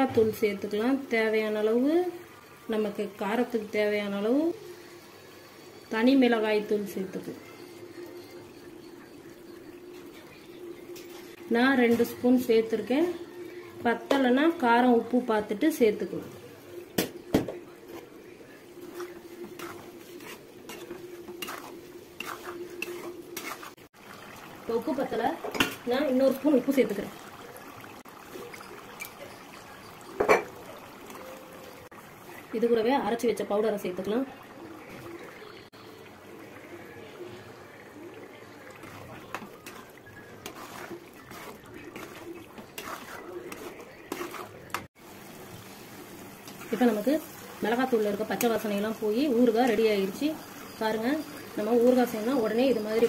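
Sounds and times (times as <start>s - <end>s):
wet slopping stirring: 17.6s - 32.5s, 34.0s - 53.0s
spoon scraping cooking pot: 18.8s - 23.8s, 38.8s - 44.9s.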